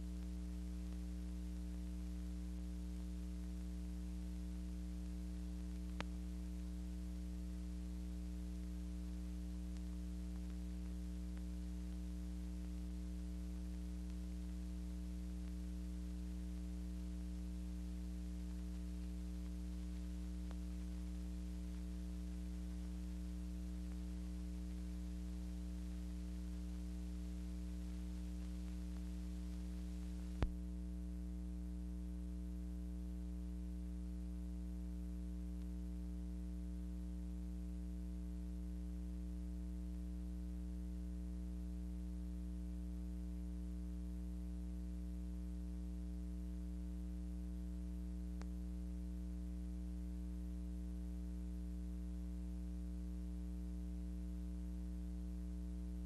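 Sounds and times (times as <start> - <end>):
low electrical hum with hiss: 0.0 - 56.0.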